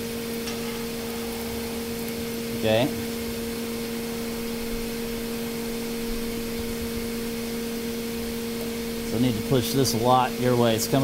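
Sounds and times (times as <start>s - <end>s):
machine motor humming: 0.0s - 11.0s.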